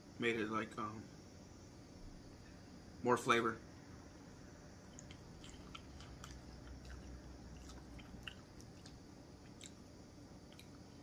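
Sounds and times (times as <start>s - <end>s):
person chewing food: 4.9s - 11.0s.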